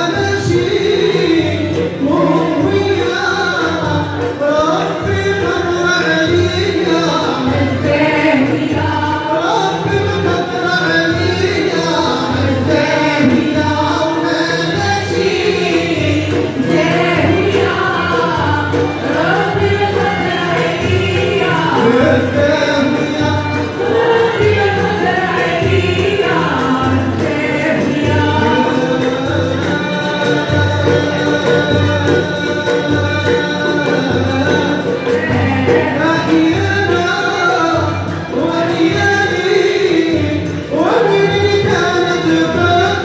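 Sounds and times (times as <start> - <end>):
lead singer singing: 0.0 - 43.0
violins and ouds playing: 0.0 - 43.0
voices singing along: 0.0 - 43.0.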